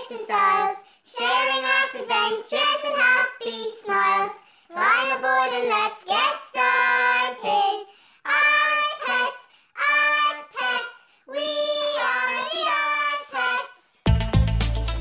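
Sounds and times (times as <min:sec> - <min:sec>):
person singing in high voice: 0:00.0 - 0:14.0
instrumental music with heavy bass: 0:14.0 - 0:15.0.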